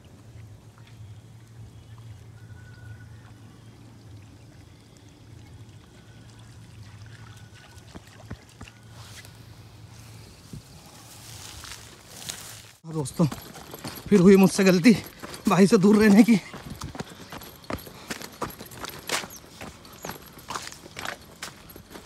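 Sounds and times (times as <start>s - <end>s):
faint trickling water: 0.0s - 22.0s
low steady hum: 0.0s - 22.0s.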